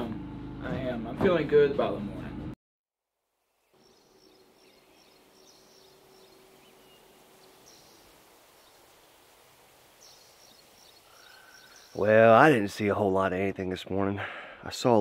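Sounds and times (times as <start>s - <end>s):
faint woodland ambience: 3.2s - 15.0s
high bird chirps: 3.6s - 12.2s.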